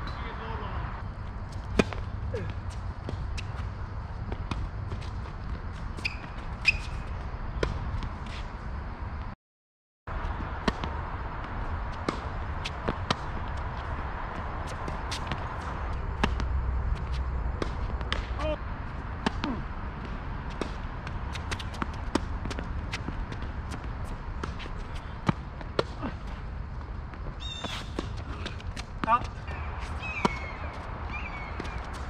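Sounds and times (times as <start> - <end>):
tennis ball struck by rackets: 1.7 - 2.1, 17.1 - 18.4, 19.2 - 23.8, 27.6 - 30.5
ball bouncing on hard court: 19.2 - 26.1, 27.6 - 32.0.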